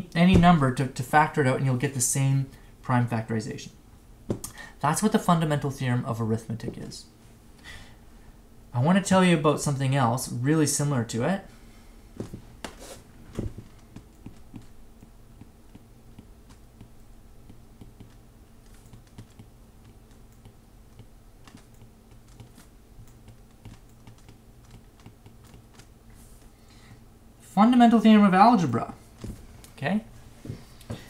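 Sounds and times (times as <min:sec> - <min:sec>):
low steady hum: 0:00.0 - 0:31.0
stylus tapping on tablet screen: 0:13.4 - 0:14.7, 0:15.4 - 0:25.8.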